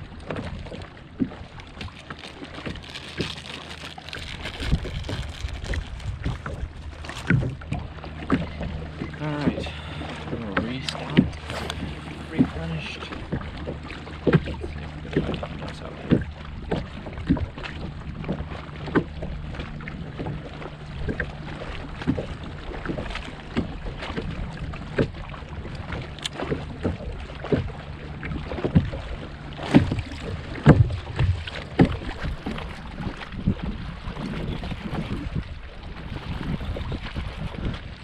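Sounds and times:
wind on microphone: 0.0 - 15.0, 27.7 - 38.0
waves slapping against kayak hull: 0.0 - 38.0.

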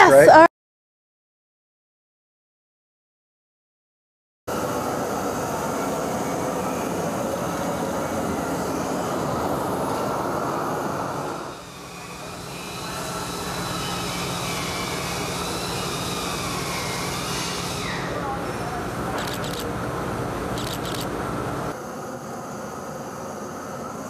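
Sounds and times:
propane torch hissing: 4.5 - 18.2
steady low hum: 4.5 - 24.0.

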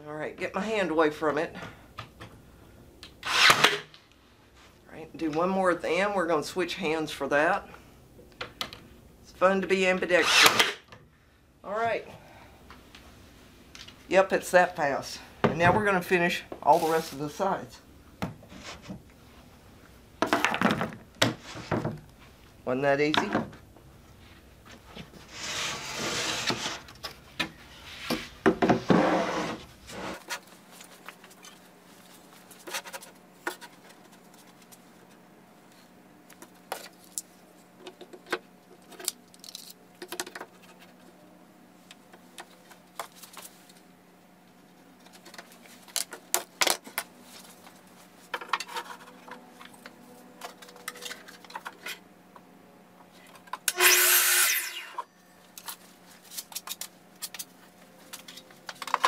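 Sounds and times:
wood knocks and scrapes: 28.0 - 30.4.

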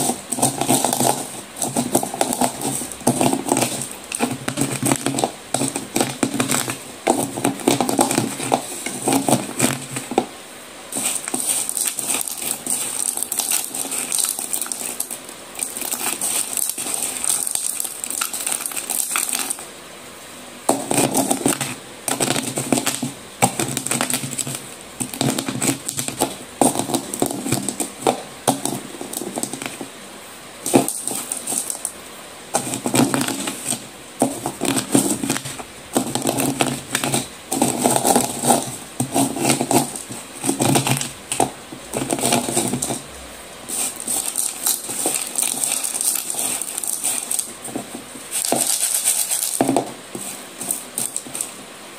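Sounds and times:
gritty scraping: 0.0 - 10.3, 10.9 - 19.6, 32.6 - 51.6
slate pieces crunching: 0.0 - 10.3, 10.9 - 19.6, 20.7 - 29.9, 30.6 - 32.0, 32.6 - 51.6.

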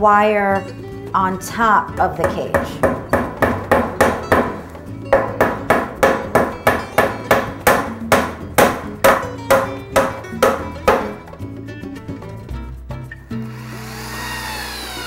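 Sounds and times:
hammer driving nails: 2.2 - 11.2.

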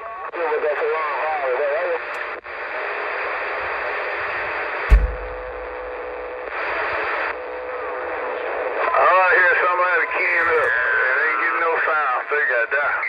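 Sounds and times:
radio static hiss: 0.4 - 13.0
thump: 4.9 - 5.7.

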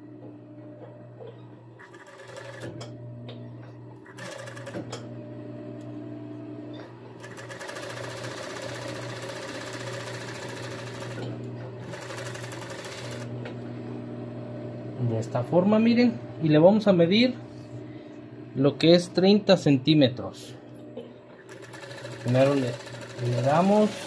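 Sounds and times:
sewing machine stitching: 1.8 - 3.0, 4.0 - 5.1, 7.2 - 13.3, 21.4 - 24.0
steady hum: 13.5 - 21.5.

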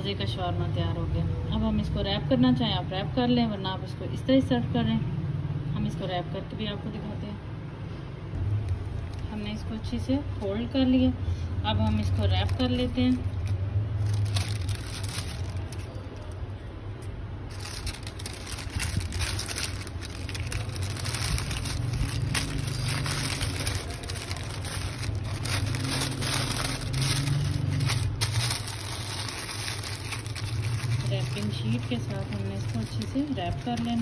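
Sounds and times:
paper crinkling and rustling: 11.8 - 16.4, 17.5 - 34.0.

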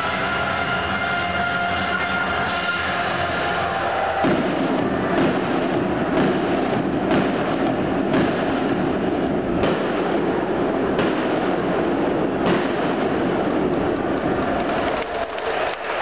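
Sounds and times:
dense steady noise: 0.0 - 16.0
fireworks bangs: 0.0 - 16.0.

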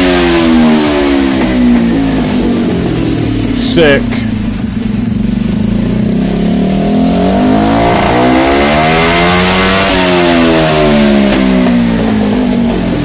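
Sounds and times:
minibike engine revving: 0.0 - 13.0.

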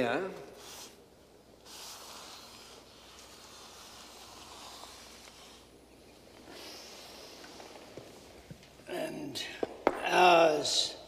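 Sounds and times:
pencil scratching on paper: 1.6 - 5.7.

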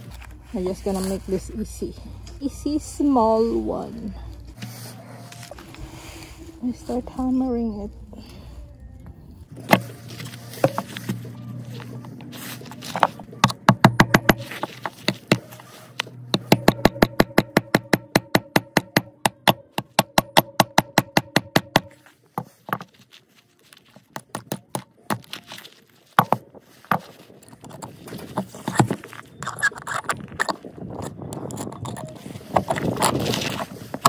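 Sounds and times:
hammer striking nails: 13.0 - 15.4, 16.4 - 22.0.

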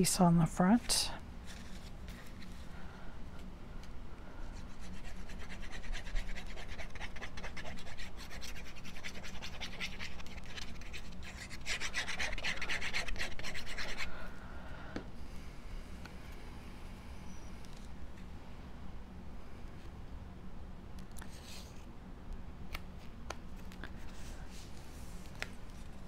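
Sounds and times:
scratchy rubbing on card: 4.5 - 14.2.

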